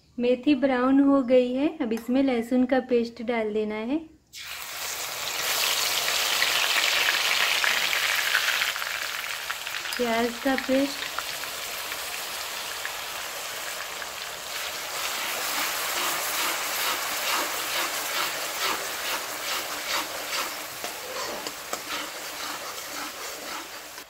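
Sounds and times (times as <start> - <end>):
paste sizzling in hot oil: 4.4 - 24.0
metal spatula scraping pan: 15.0 - 24.0.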